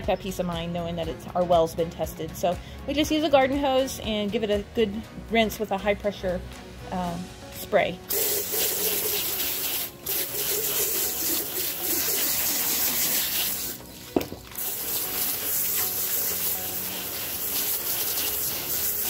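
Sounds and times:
hose spraying water: 8.1s - 19.0s.

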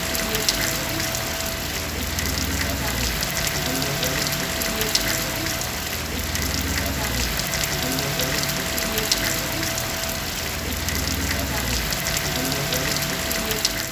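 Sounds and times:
raindrops hitting: 0.0s - 13.9s
steady rain hissing: 0.0s - 13.9s.

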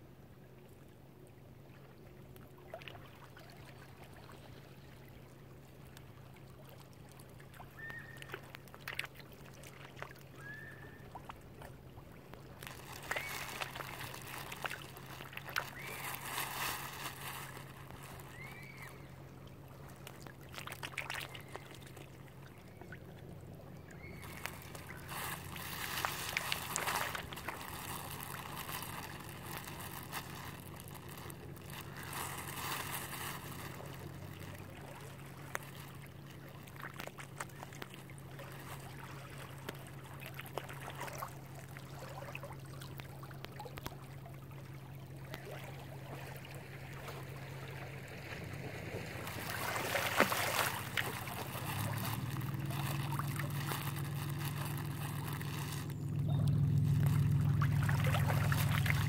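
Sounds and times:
water lapping and sloshing: 0.0s - 59.0s
low hum: 46.0s - 59.0s.

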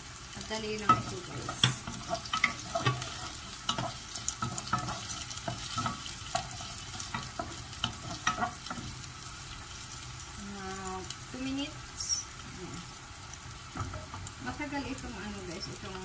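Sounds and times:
onions sizzling in oil: 0.0s - 16.0s
wooden spoon scraping pan: 0.8s - 9.6s.

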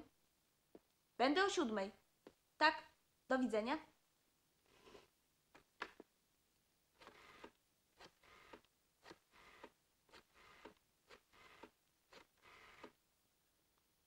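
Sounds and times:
rotary telephone dial whirring: 7.0s - 13.0s.

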